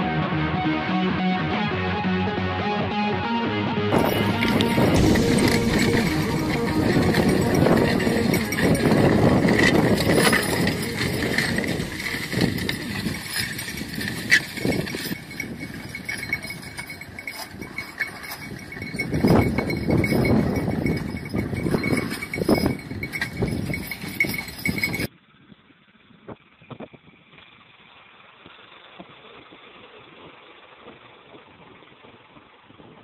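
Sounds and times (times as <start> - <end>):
horses pulling a harrow: 3.9 - 25.1
metal rattling: 3.9 - 25.1.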